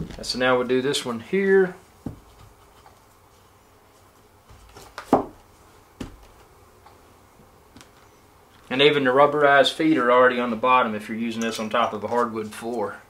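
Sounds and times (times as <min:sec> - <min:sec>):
soft handling sounds: 0:00.0 - 0:10.1
wooden chair leg knocks: 0:05.0 - 0:05.4.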